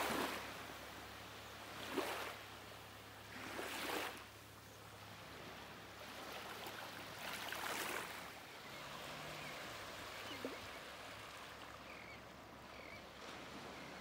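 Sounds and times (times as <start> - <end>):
water sloshing and lapping: 0.0 - 0.6, 1.6 - 2.6, 3.3 - 4.4, 5.2 - 11.9.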